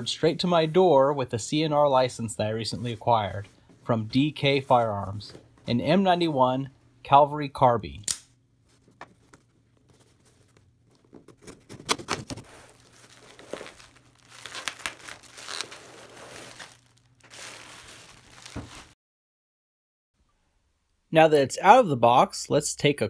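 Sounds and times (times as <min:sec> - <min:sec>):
packing paper and bubble wrap crinkling: 0:08.7 - 0:19.0.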